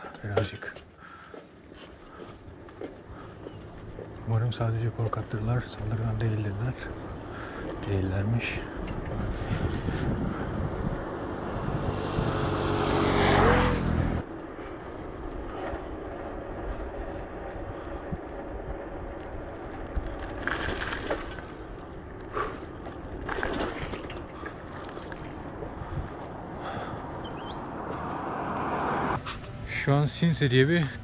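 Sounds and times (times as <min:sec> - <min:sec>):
bicycle tyre rumble: 0:02.2 - 0:29.4
motor vehicle engine: 0:02.6 - 0:31.0
wind on microphone: 0:08.3 - 0:29.3.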